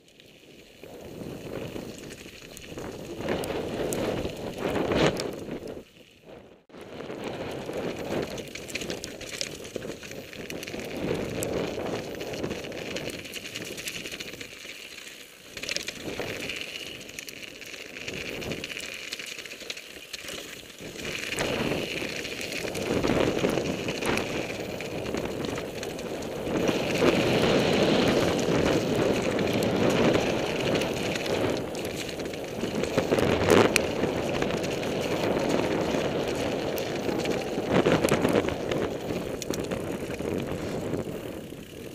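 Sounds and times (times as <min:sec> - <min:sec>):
bike tyres crunching over gravel: 0:00.0 - 0:41.9
wind rushing over microphone: 0:00.8 - 0:13.3, 0:20.8 - 0:41.9.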